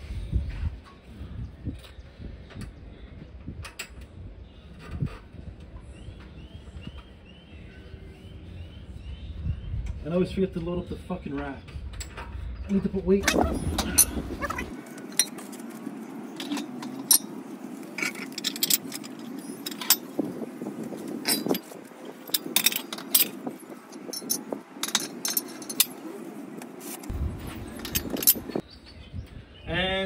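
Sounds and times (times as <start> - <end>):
iron weight plates clanking: 18.0 - 20.2, 21.2 - 26.0, 27.7 - 28.6.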